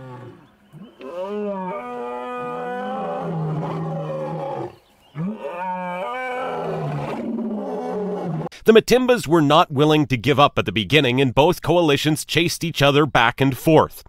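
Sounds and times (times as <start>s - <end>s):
lions roaring and snarling: 0.0s - 8.5s.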